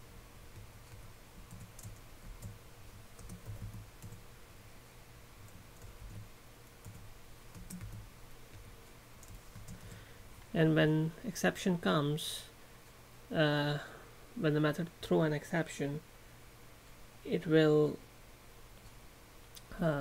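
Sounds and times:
low background hum: 0.0 - 20.0
computer keyboard typing: 0.5 - 4.3, 5.4 - 10.0.

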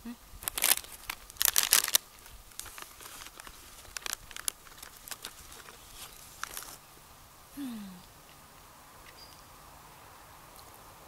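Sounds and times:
plastic chip bag crinkling: 0.4 - 6.8.

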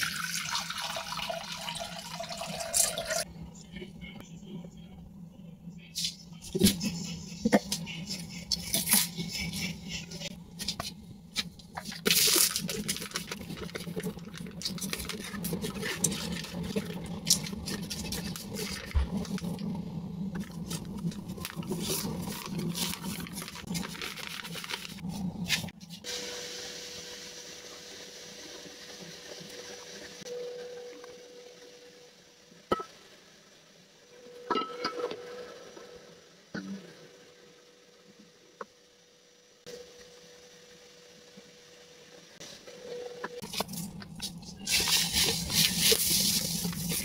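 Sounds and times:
plastic bag rustling: 11.7 - 19.6, 20.4 - 25.7, 43.4 - 47.0
faint steady tone: 30.2 - 36.2.

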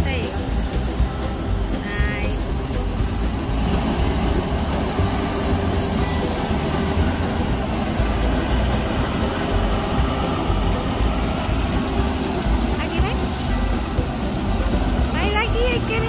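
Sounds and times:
tractor engine droning: 0.0 - 16.0.

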